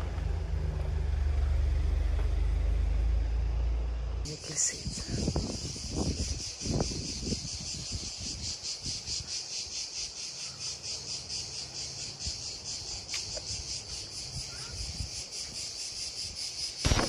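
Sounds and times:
cicadas buzzing: 0:04.2 - 0:17.0.

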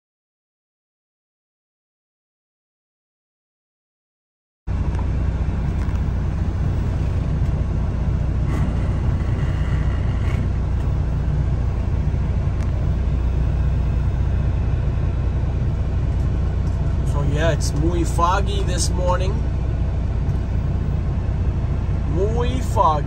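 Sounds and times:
diesel truck engine rumbling: 0:04.7 - 0:23.0.

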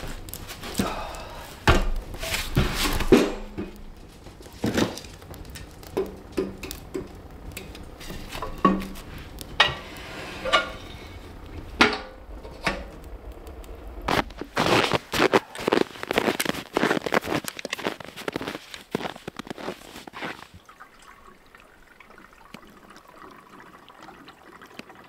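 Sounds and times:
logs knocking against metal stove: 0:01.6 - 0:04.0, 0:04.6 - 0:10.8.

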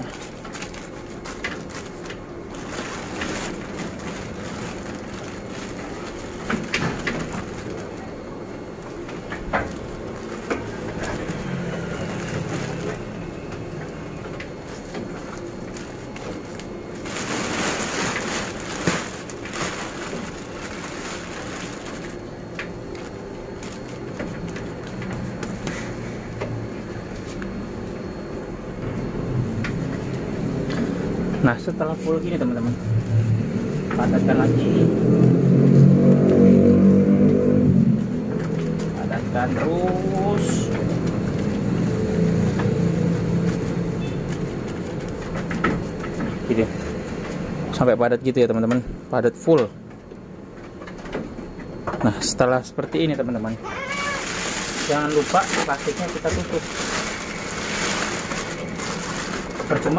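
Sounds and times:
hands packing tofu pulp: 0:00.0 - 0:08.1, 0:14.4 - 0:26.0, 0:53.6 - 0:59.9
plastic sheet rustling: 0:00.0 - 0:26.1, 0:29.4 - 0:47.5, 0:53.6 - 0:59.9.

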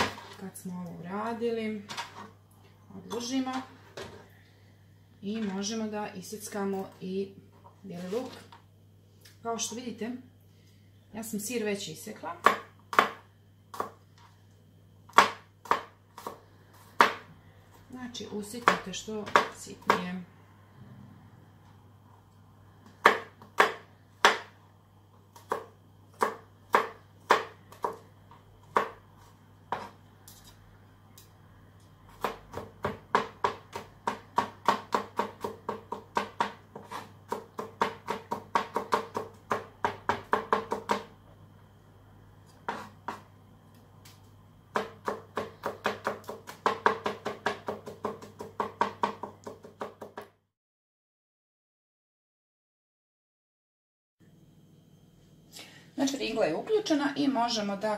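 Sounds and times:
knife chopping on cutting board: 0:12.4 - 0:14.0, 0:15.1 - 0:17.3, 0:22.9 - 0:24.6, 0:25.3 - 0:28.0, 0:28.6 - 0:30.6, 0:32.1 - 0:41.1, 0:42.6 - 0:43.3, 0:44.7 - 0:50.3.

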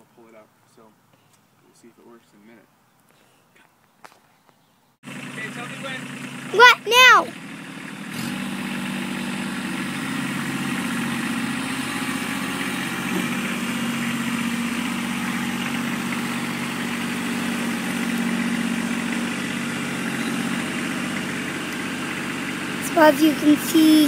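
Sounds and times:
tractor diesel engine running: 0:05.0 - 0:24.0.

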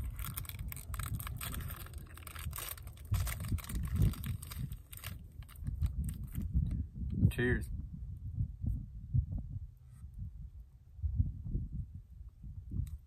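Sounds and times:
rustling and handling noises: 0:00.0 - 0:06.5
wind buffeting microphone: 0:00.0 - 0:13.0.

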